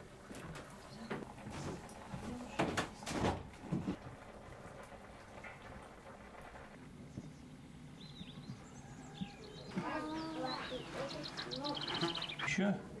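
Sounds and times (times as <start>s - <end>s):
bird chirp: 7.0s - 12.8s.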